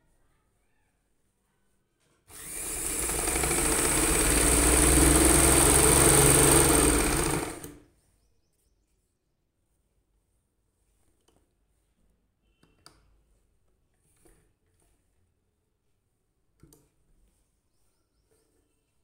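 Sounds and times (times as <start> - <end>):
sewing machine stitching fabric: 2.3 - 7.8.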